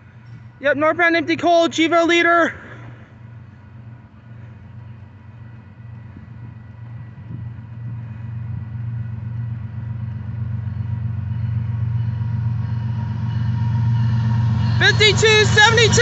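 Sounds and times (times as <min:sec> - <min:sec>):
locomotive engines droning: 0:00.0 - 0:16.0.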